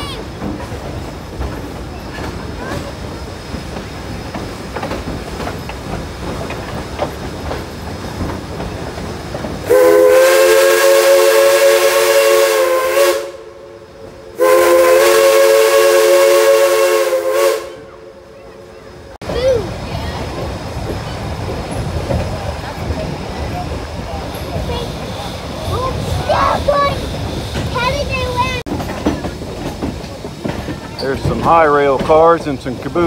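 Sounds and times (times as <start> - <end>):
wheels clicking over rail joints: 0.0 - 9.8, 19.2 - 33.0
train rumbling: 0.0 - 33.0
steam locomotive whistle: 9.7 - 18.2.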